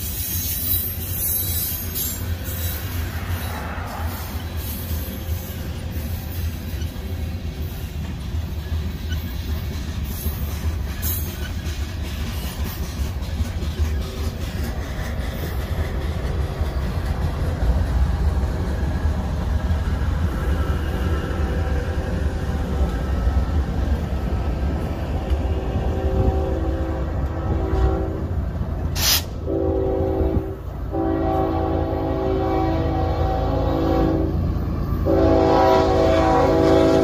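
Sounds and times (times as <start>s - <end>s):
freight cars rumbling by: 0.0s - 37.0s
distant train horn: 1.2s - 7.1s, 24.8s - 37.0s
loud locomotive horn blasts: 25.1s - 37.0s.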